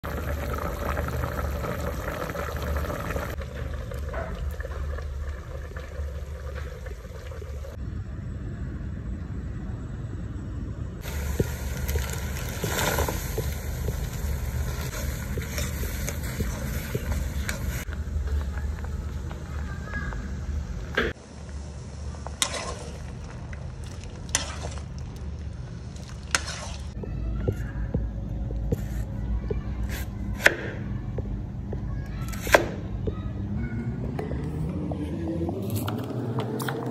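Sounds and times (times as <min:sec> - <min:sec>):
frying hiss: 0:00.0 - 0:07.8, 0:11.0 - 0:27.0
stew bubbling in a pot: 0:00.0 - 0:07.8, 0:11.0 - 0:18.9
low hum: 0:00.0 - 0:32.2, 0:32.8 - 0:36.9
metal ladle scraping pot: 0:14.7 - 0:17.8, 0:22.4 - 0:23.1, 0:26.2 - 0:27.0.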